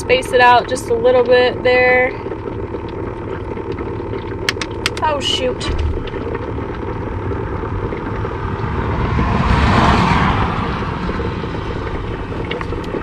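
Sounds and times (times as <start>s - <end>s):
steady low rumble: 0.0s - 13.0s
car passing: 7.4s - 13.0s.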